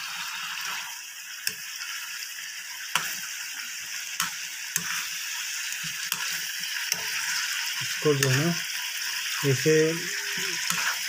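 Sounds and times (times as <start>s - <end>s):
curry sizzling in a pan: 0.0s - 11.0s
spoon clicking against pan: 2.9s - 3.2s.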